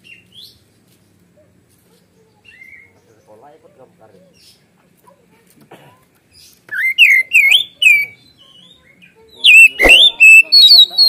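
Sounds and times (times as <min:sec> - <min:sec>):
songbird singing whistled phrases: 0:02.4 - 0:03.0, 0:06.7 - 0:11.0
sharp knock: 0:09.8 - 0:10.2.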